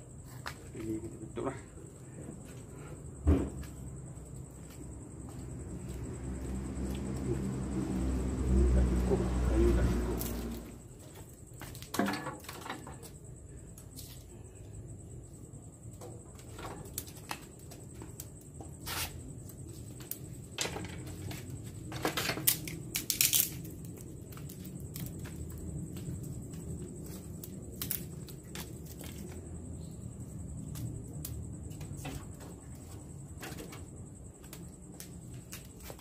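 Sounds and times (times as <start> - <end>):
twigs clattering into metal firebox: 9.8 - 14.3, 15.9 - 29.5
dry twigs snapping: 22.1 - 25.2, 27.7 - 29.3.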